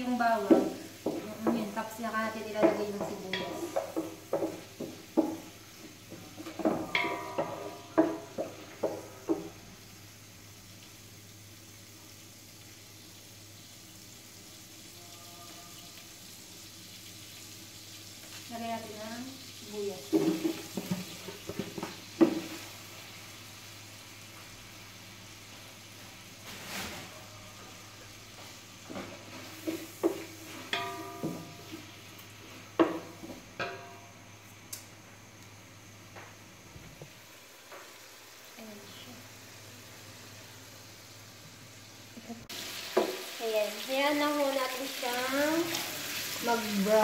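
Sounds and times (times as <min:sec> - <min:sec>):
garlic sizzling in butter: 0:00.0 - 0:34.8, 0:35.6 - 0:47.0
spatula knocking on metal pot: 0:00.4 - 0:01.8, 0:02.4 - 0:05.5, 0:06.1 - 0:09.6, 0:30.0 - 0:31.9, 0:32.8 - 0:34.1.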